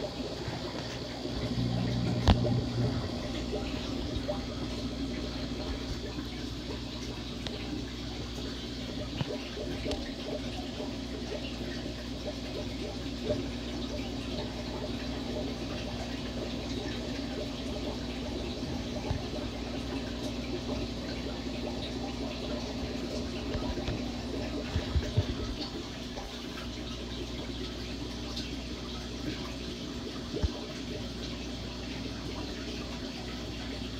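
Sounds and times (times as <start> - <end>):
aquarium water bubbling: 0.0 - 33.9
low hum: 0.2 - 12.3.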